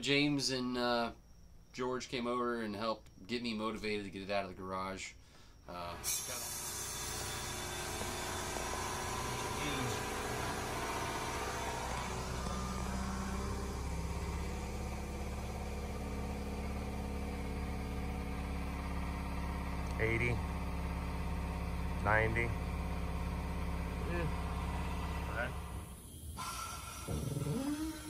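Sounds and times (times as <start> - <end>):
car engine idling: 6.6 - 27.7.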